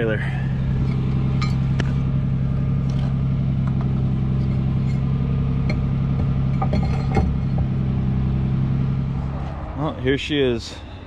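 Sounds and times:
truck engine idling: 0.0s - 11.0s
hitch mount clunk: 2.9s - 7.8s
metal clinks: 5.7s - 7.6s.

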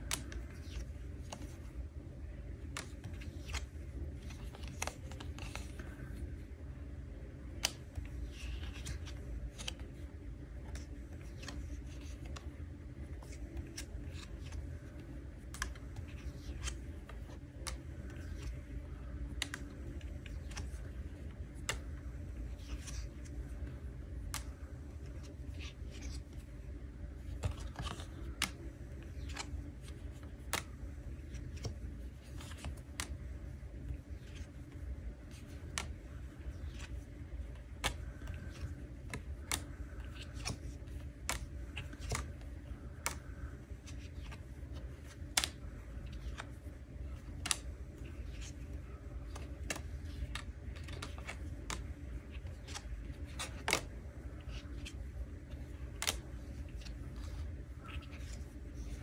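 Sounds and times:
faint low hum: 0.0s - 59.0s
cards snapping on wooden table: 7.6s - 9.9s, 10.7s - 12.5s, 19.2s - 22.0s, 24.2s - 26.3s, 27.3s - 33.2s, 35.3s - 46.5s, 47.1s - 47.7s, 48.3s - 55.0s.

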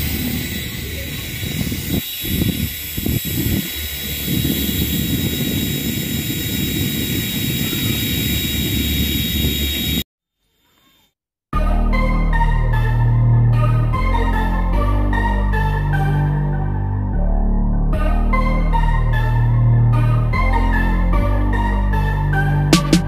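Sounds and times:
toy helicopter motor whine: 0.0s - 10.0s.

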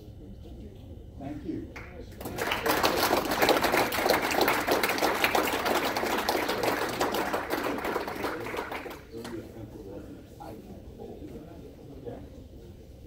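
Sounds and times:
audience applause: 2.2s - 9.2s.

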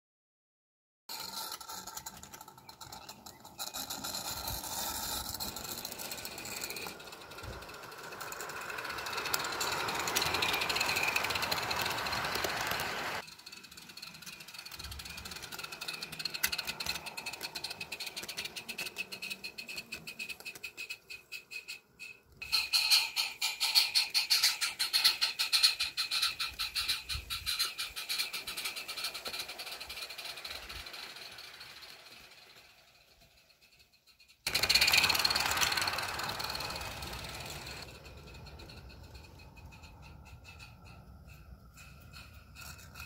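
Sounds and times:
model train rattling on track: 1.1s - 43.0s
steam hiss: 6.0s - 16.3s.

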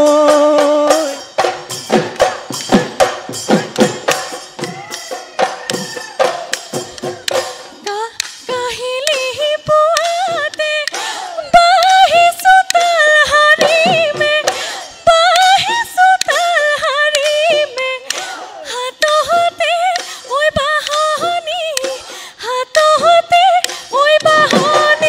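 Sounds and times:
woman singing high melody: 0.0s - 1.3s, 7.8s - 18.1s, 18.7s - 25.0s
drum strokes: 0.0s - 25.0s.

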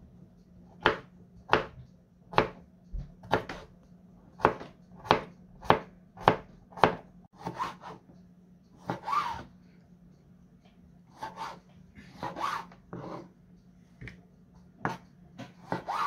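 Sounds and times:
knife chopping on cutting board: 0.8s - 3.7s, 4.4s - 8.0s, 8.8s - 9.5s, 11.2s - 13.2s, 14.8s - 16.0s
knife scraping board: 8.8s - 9.5s, 11.1s - 13.3s, 14.8s - 16.0s.

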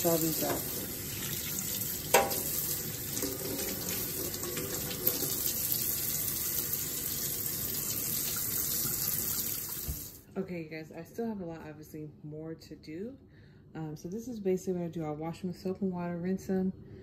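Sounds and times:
tap water running into sink: 0.0s - 10.2s.

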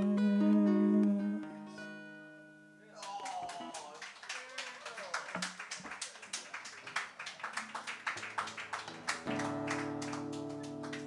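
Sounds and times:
audience applause: 3.0s - 11.0s.

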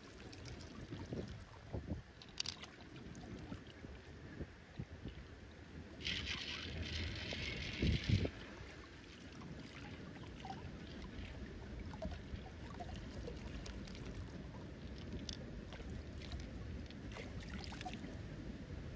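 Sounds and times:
running water rumble: 0.0s - 18.9s
faint small clicks: 2.2s - 2.8s, 14.8s - 18.0s
water trickling off shell: 12.0s - 18.0s.

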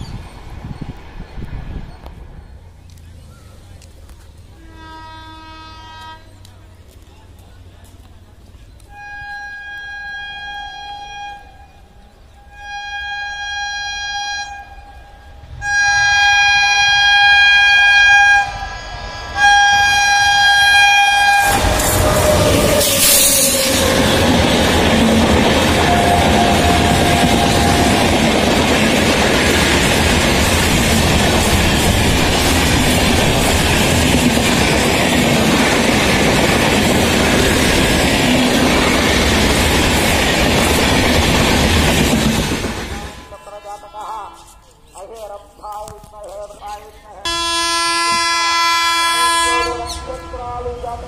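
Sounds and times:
train rushing past: 0.0s - 7.0s, 8.7s - 44.5s
locomotive horn blasts: 4.6s - 6.4s, 8.8s - 18.7s, 19.3s - 24.4s, 25.6s - 28.2s, 47.3s - 50.6s.

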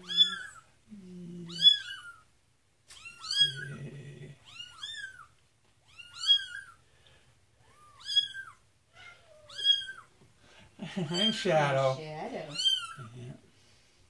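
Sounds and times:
kitten meowing: 0.0s - 0.6s, 1.5s - 2.2s, 2.9s - 6.8s, 7.6s - 10.1s, 12.5s - 13.1s.

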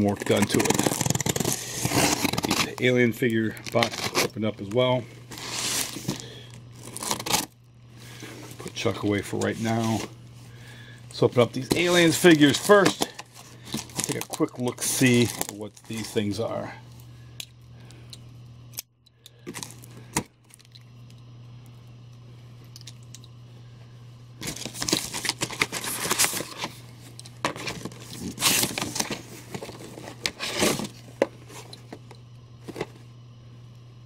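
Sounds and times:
packing tape tearing: 0.0s - 7.6s, 11.6s - 16.2s, 19.4s - 20.7s, 24.4s - 26.8s, 27.4s - 31.7s
cardboard flaps rustling: 11.4s - 14.4s.

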